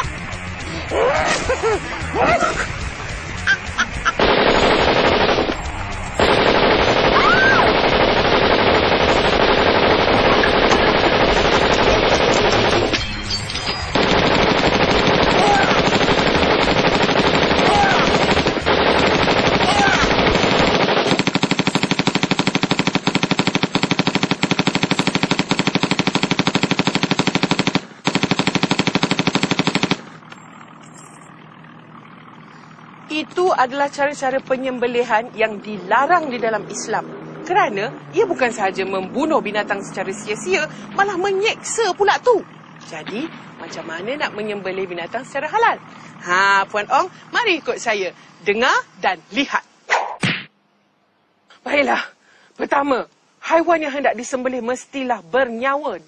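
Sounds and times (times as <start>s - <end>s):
automatic rifle fire: 4.2s - 13.1s, 13.8s - 30.2s.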